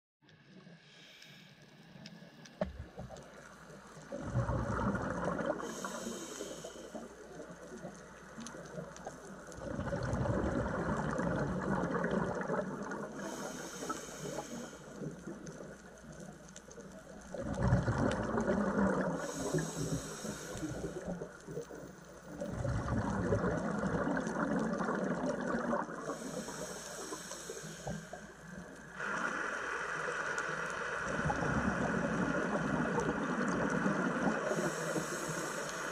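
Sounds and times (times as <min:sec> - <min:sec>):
underwater regulator bubbles: 0:04.0 - 0:16.3, 0:17.2 - 0:29.4, 0:31.0 - 0:35.9
regulator hiss: 0:05.6 - 0:07.6, 0:13.2 - 0:15.1, 0:19.2 - 0:22.0, 0:26.1 - 0:31.9, 0:34.4 - 0:35.9.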